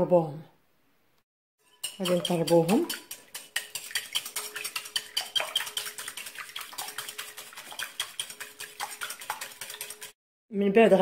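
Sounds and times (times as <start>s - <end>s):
whisk clinking against glass bowl: 1.6s - 10.2s.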